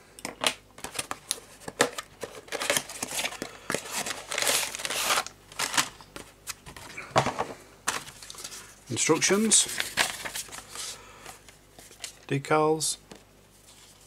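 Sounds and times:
packaging crinkling and rustling: 0.2s - 7.0s, 7.9s - 12.3s.

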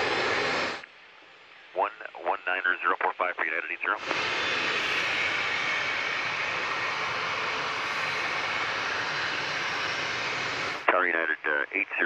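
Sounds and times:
jet engines rushing: 0.0s - 0.8s, 3.8s - 11.5s
high engine whine: 0.0s - 1.8s, 3.6s - 12.0s.

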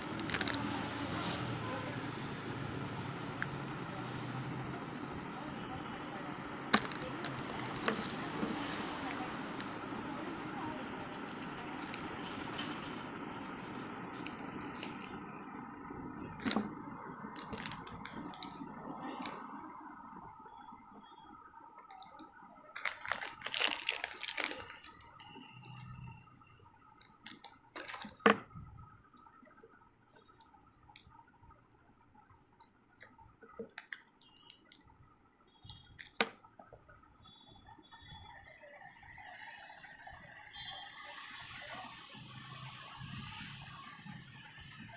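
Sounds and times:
sweet wrappers crinkling: 0.0s - 3.8s, 6.7s - 10.0s, 11.1s - 13.3s, 14.1s - 19.5s, 21.8s - 35.0s, 35.7s - 36.3s.

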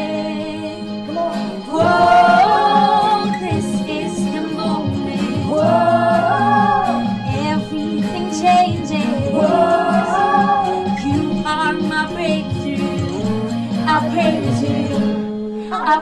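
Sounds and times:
group singing praise song: 0.0s - 11.5s
acoustic guitar: 0.0s - 16.0s
keyboard: 0.0s - 16.0s.

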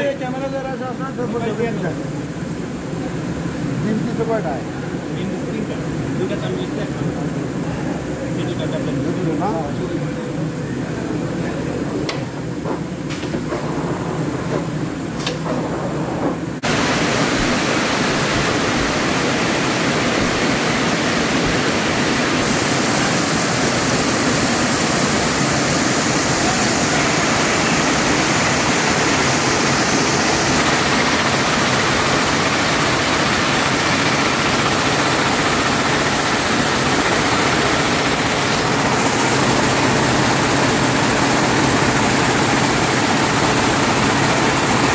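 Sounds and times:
weaving looms running: 16.6s - 44.9s.

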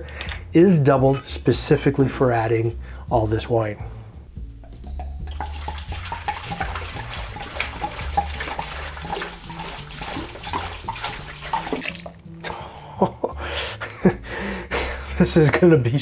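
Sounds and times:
wine pouring and splashing: 4.8s - 12.5s.

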